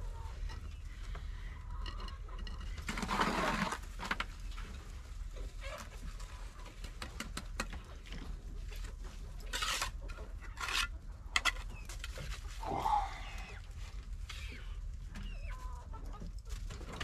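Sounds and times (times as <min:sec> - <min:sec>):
trowel scrape: 0:02.9 - 0:03.8, 0:09.5 - 0:11.7.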